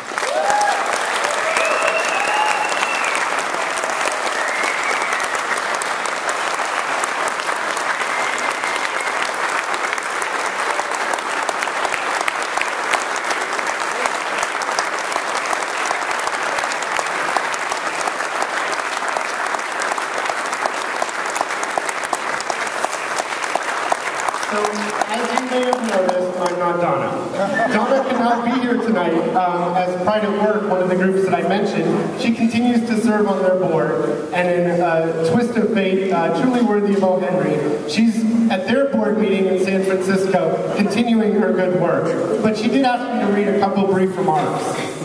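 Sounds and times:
audience applauding: 0.0 - 26.8
whoops and cheers: 0.2 - 5.6, 7.9 - 9.4.

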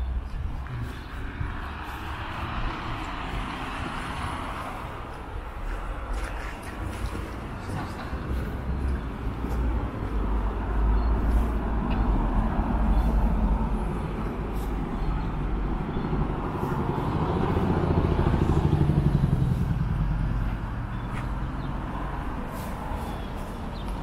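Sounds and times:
low traffic rumble: 0.0 - 24.0
vehicle engine driving past: 7.6 - 23.2.

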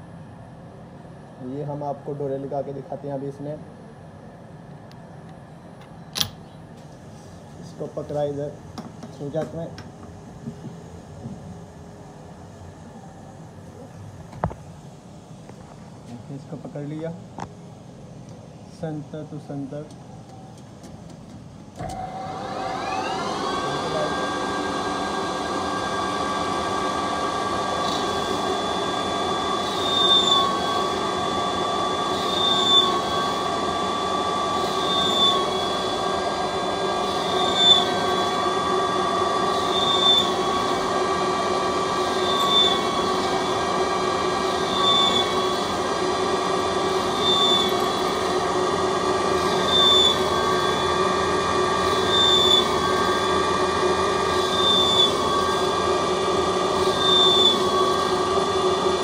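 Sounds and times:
lathe whining: 19.7 - 59.0
tool squealing in metal: 29.6 - 30.9, 32.1 - 33.4, 34.6 - 36.0, 37.1 - 38.3, 39.6 - 40.5, 42.1 - 43.0, 44.6 - 45.6, 47.0 - 48.1, 49.5 - 50.8, 51.9 - 53.1, 54.4 - 55.6, 56.8 - 58.1.

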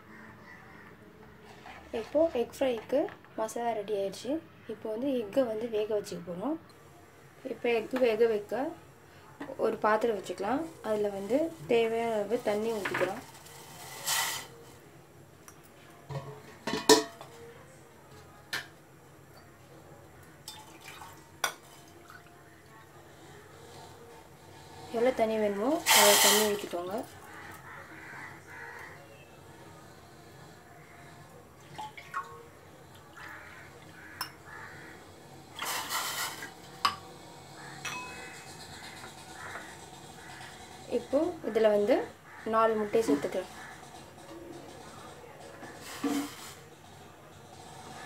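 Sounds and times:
short hiss: 13.8 - 14.5, 25.9 - 26.5
metallic clinks from steel pot: 37.9 - 38.4.

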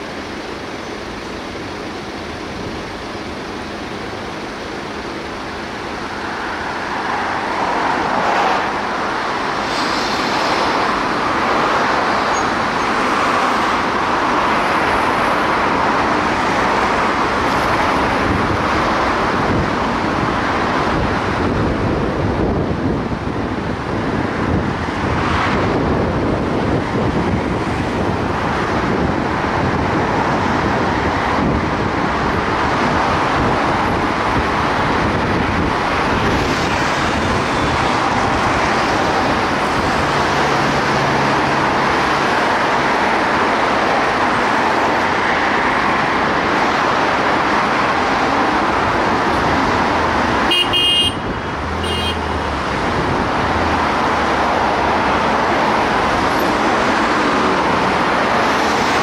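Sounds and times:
city traffic noise: 0.0 - 59.0.

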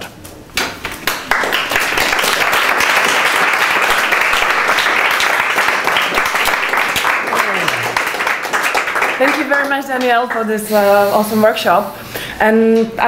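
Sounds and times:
audience applauding: 1.0 - 10.6.

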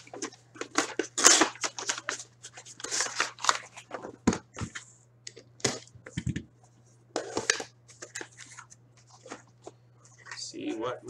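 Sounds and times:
plastic and cardboard rustling and tearing: 0.0 - 4.8.

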